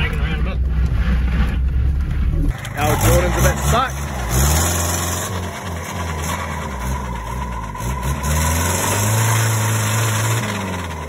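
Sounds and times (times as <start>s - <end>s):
engine revving: 0.0s - 11.0s
off-road engines running: 0.0s - 11.0s.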